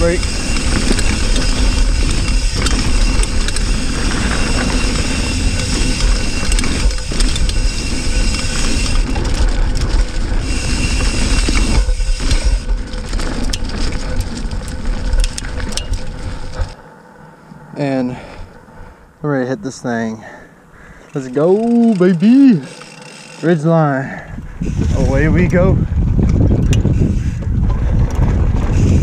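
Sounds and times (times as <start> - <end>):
wind rushing across microphone: 0.0 - 16.8, 24.2 - 29.0
bike clicking and rattling: 0.0 - 16.9, 20.8 - 29.0
bike tyres crunching on dirt: 0.0 - 29.0.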